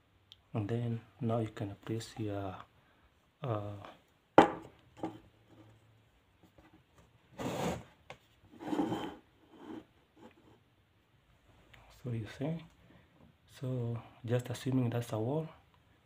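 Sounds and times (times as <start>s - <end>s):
rubbing scrapes: 7.4s - 7.9s, 8.5s - 10.6s.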